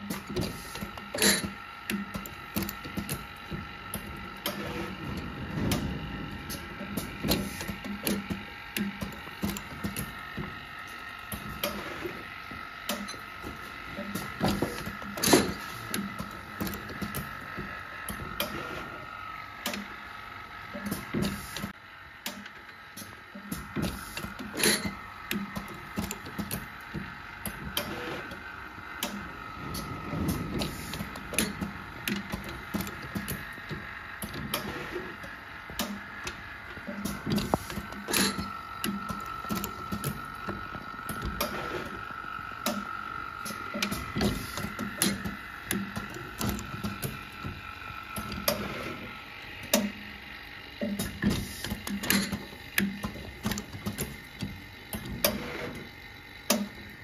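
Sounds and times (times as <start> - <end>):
machine high hum: 0.0 - 57.0
clicks and knocks of molds: 50.8 - 55.9.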